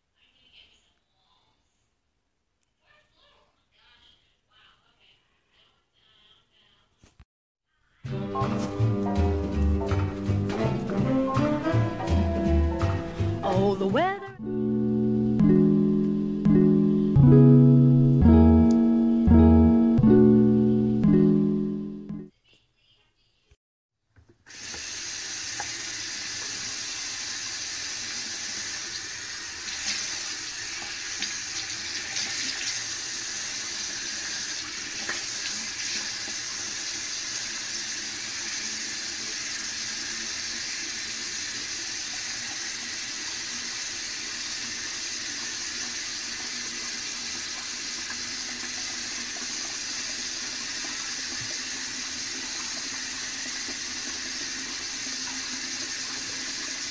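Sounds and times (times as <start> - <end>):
faucet running into sink: 8.7 - 13.6, 24.5 - 56.9.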